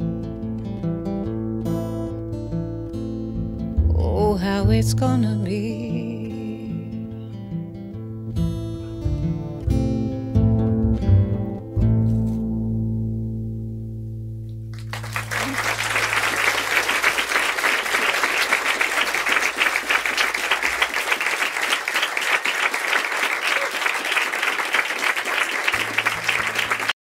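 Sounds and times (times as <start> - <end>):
audience applauding: 14.7 - 27.0.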